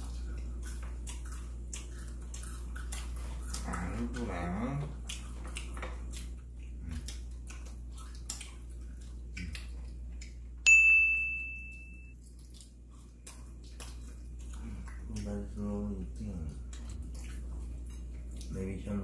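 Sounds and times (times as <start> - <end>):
clicks and taps of eating: 0.0 - 10.6, 12.2 - 19.0
steady low hum: 0.0 - 19.0
bright ringing ding: 10.6 - 12.2.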